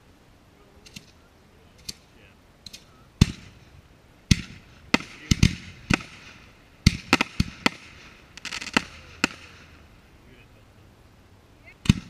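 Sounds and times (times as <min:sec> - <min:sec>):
firework bangs with echo: 0:03.2 - 0:03.7, 0:04.3 - 0:09.9.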